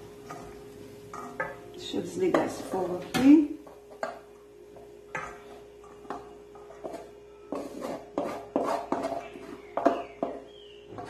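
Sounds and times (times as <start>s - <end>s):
wooden spoon scraping metal pot: 0.2s - 4.2s, 5.1s - 11.0s.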